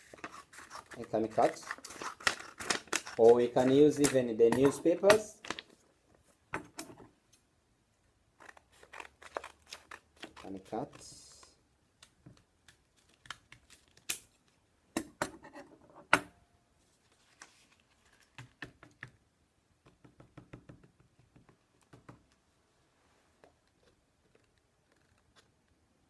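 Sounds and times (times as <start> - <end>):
paper rustling: 0.0 - 5.8, 8.4 - 11.5, 16.9 - 18.6
scissors cutting paper: 0.1 - 5.2.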